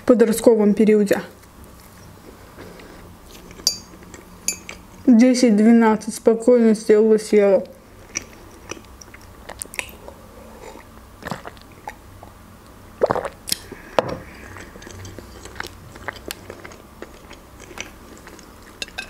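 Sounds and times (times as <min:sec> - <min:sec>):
chewing: 0:01.6 - 0:05.0, 0:08.0 - 0:12.0, 0:13.0 - 0:19.0.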